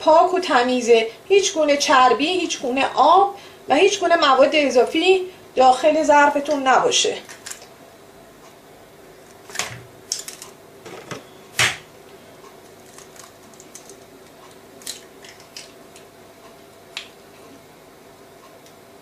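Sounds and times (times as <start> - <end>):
eggs cracking on metal bowl: 9.5 - 11.2, 12.6 - 16.1.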